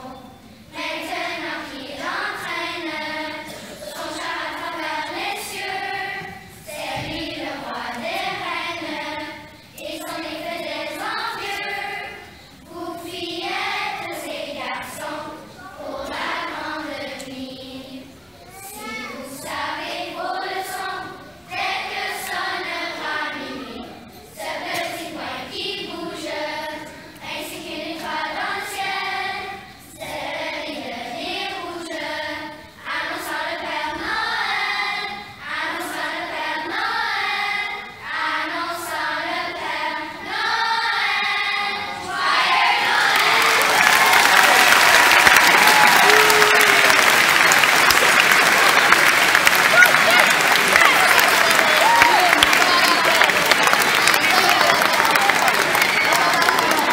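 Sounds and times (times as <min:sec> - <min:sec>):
children's choir singing: 0:00.0 - 0:56.9
applause: 0:42.9 - 0:56.9.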